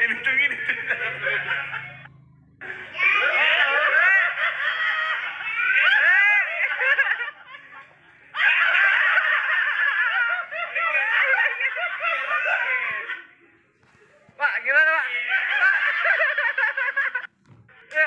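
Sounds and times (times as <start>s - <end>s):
high-pitched laughter: 0.0s - 13.5s.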